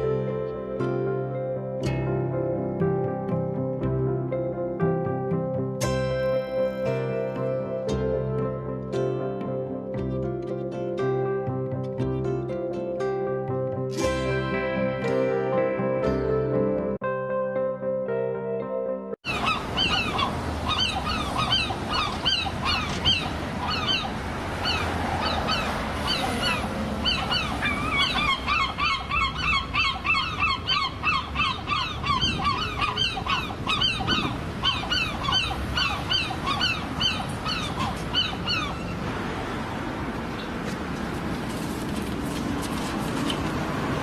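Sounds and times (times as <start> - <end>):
gulls calling: 19.2 - 39.2.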